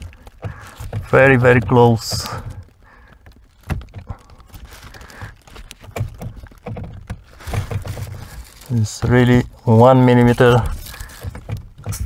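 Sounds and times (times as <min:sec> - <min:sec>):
plastic parts knocking and scraping: 0:00.0 - 0:12.0.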